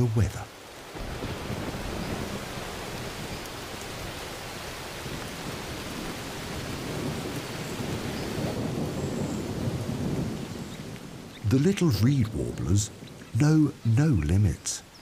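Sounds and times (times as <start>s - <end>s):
heavy rain on wet ground: 0.0s - 15.0s.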